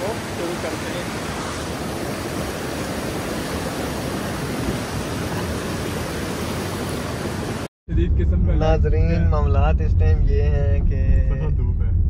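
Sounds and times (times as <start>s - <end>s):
water rushing over rocks: 0.0s - 7.7s.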